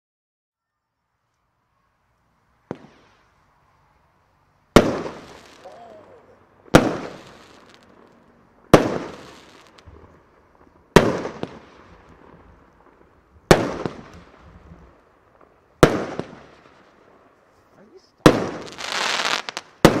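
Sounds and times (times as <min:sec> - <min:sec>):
firework bangs echoing: 0:02.6 - 0:03.3, 0:04.7 - 0:17.3, 0:18.2 - 0:20.0.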